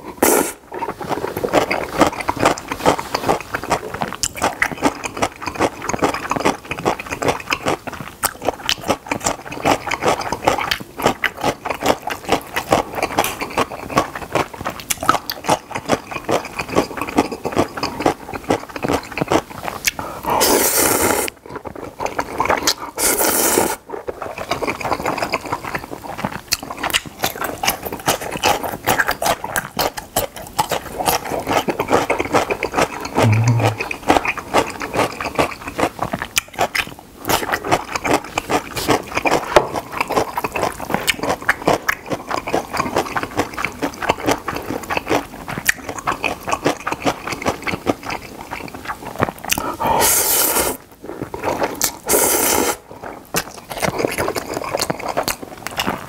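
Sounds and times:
slurping noodles: 0.0s - 3.9s, 16.3s - 26.3s, 30.9s - 35.6s, 49.5s - 53.2s
wet chewing: 0.0s - 56.0s.

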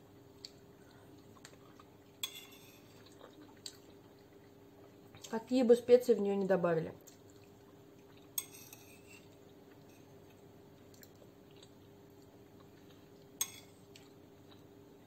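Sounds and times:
faint steady hum: 0.0s - 15.0s
faint chewing of food: 0.1s - 5.4s, 6.4s - 15.0s
fork clinking on plate: 2.2s - 3.0s, 8.4s - 9.3s, 13.4s - 13.8s.

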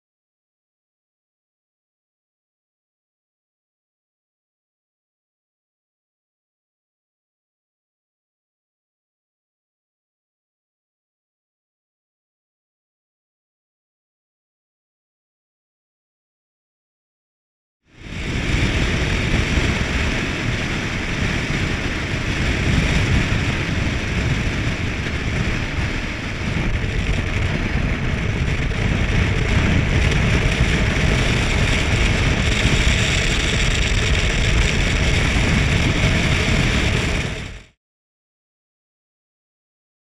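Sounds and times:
tyre and road noise: 17.9s - 37.7s
wind buffeting microphone: 18.0s - 37.7s.

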